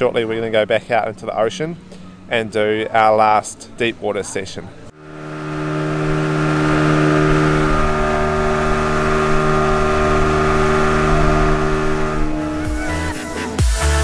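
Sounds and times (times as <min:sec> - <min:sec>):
boat engine droning: 0:04.7 - 0:13.4.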